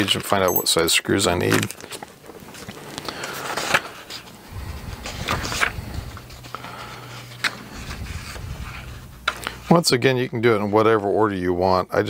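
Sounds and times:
paper pages rustling: 0:01.6 - 0:09.7.

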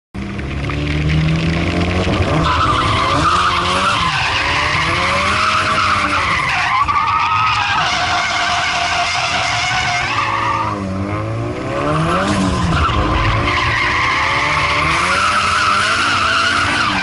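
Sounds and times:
engine revving: 0:00.2 - 0:06.5, 0:07.6 - 0:17.0
tyres squealing: 0:02.4 - 0:10.8.

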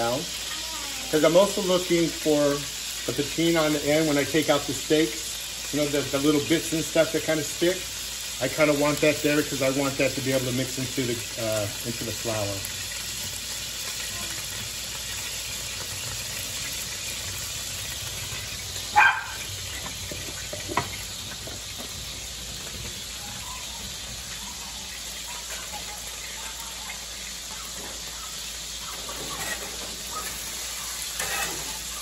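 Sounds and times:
meat sizzling in a skillet: 0:00.0 - 0:32.0
metal spatula scraping a pan: 0:27.7 - 0:32.0.

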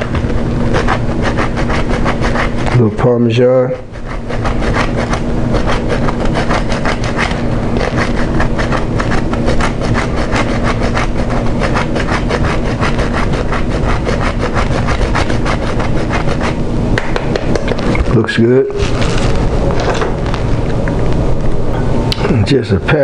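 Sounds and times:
cheese scraping on grater: 0:00.0 - 0:16.6.

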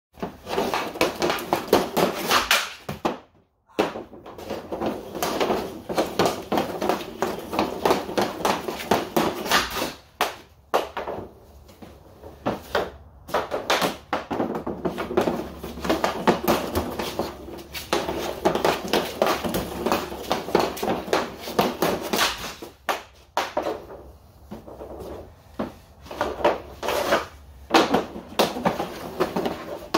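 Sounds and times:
hockey stick and pucks clacking: 0:00.2 - 0:29.9.

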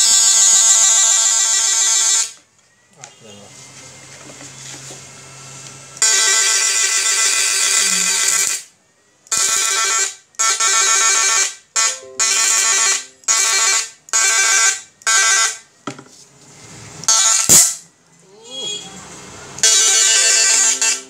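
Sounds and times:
electric fishing machine buzzing: 0:19.6 - 0:21.0.

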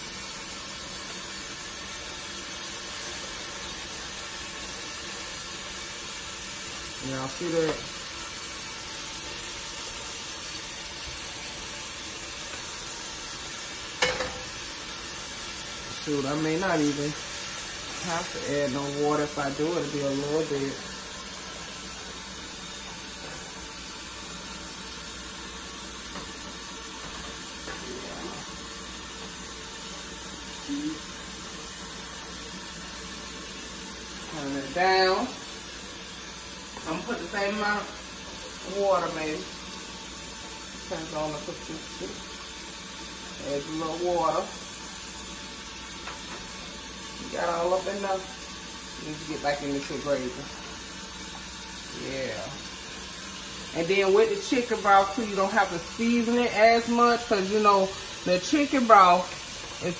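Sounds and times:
water sizzling in hot pan: 0:00.0 - 0:59.9
spatula stirring in pan: 0:07.7 - 0:16.0.

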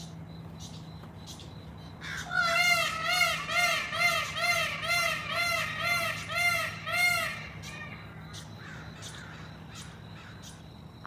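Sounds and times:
faint insect ticking: 0:00.0 - 0:02.4
peafowl calling: 0:01.3 - 0:10.6.

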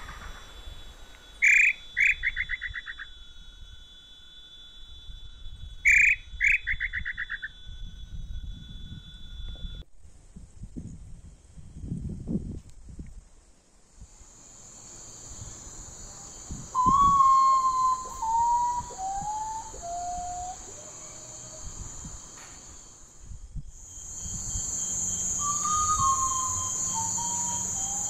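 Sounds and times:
bird whistling mournful song: 0:00.0 - 0:03.2, 0:04.9 - 0:09.8, 0:16.3 - 0:22.7, 0:23.9 - 0:28.0
high insect trill: 0:00.0 - 0:13.0, 0:13.6 - 0:28.0.

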